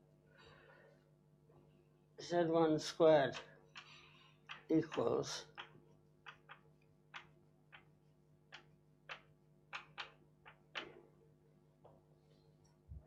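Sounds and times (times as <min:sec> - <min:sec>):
faint steady hum: 0:00.0 - 0:13.0
chalk tapping on blackboard: 0:08.5 - 0:11.0.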